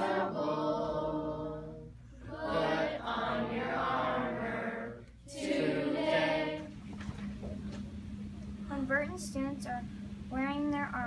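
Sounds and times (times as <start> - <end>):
children singing in unison: 0.0 - 1.6, 2.3 - 6.7.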